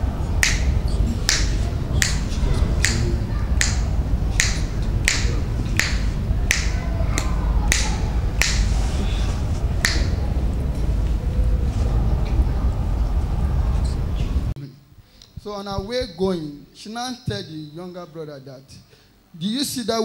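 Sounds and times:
steady low rumble: 0.0s - 14.6s
finger snapping: 4.4s - 8.8s, 9.8s - 10.2s.

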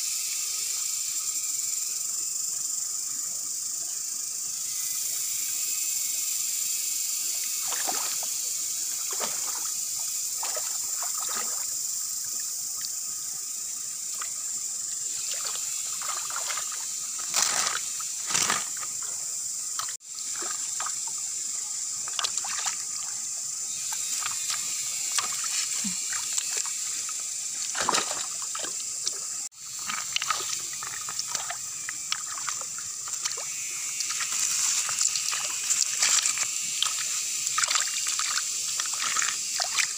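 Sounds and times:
high-pitched insect buzz: 0.0s - 39.9s
stream trickling over stones: 7.4s - 39.9s
hands splashing in water: 27.7s - 29.2s, 29.8s - 39.9s.

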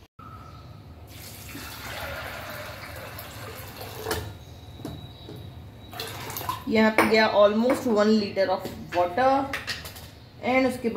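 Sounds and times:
water pouring into pot: 1.1s - 4.2s.

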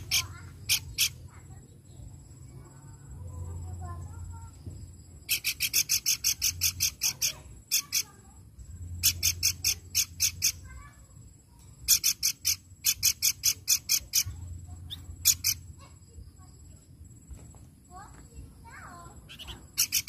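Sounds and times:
babbler singing high notes: 0.0s - 1.4s, 5.3s - 10.8s, 11.8s - 15.8s, 19.1s - 20.0s.

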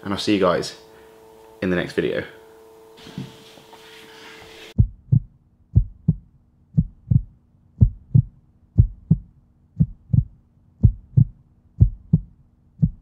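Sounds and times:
faint low hum: 4.8s - 13.0s
heartbeat thumps: 4.8s - 13.0s.

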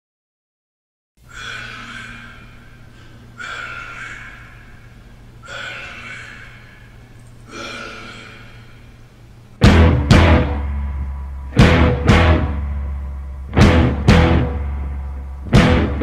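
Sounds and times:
breathy exhale-like sounds: 1.2s - 9.4s
low steady hum: 1.2s - 16.0s.

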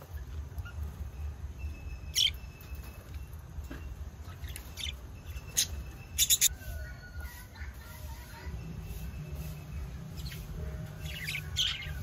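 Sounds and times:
budgerigars chirping: 0.5s - 3.1s, 4.2s - 6.5s, 9.3s - 12.0s.

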